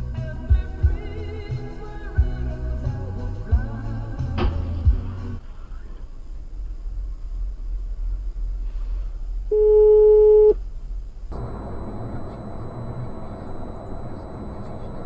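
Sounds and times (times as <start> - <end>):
in-car road rumble: 11.3 - 15.0
loud electronic beep: 11.3 - 15.0
thin high whine: 11.3 - 15.0.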